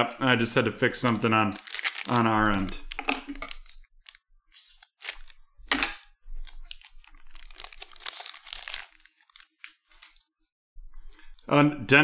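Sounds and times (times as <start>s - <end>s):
foil wrapper crinkling: 1.0s - 5.4s, 6.4s - 10.2s.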